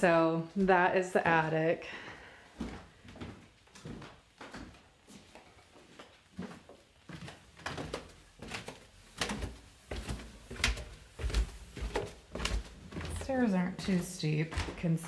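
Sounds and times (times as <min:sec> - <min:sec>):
footsteps on stairs: 0:00.5 - 0:15.0.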